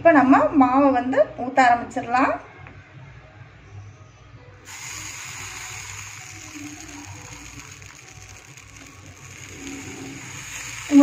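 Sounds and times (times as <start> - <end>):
batter sizzling on hot griddle: 4.7 - 11.0.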